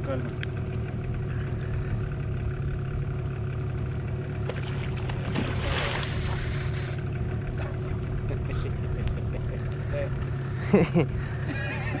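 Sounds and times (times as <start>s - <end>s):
outboard motor droning: 0.0s - 12.0s
fish splashing at surface: 4.5s - 7.1s.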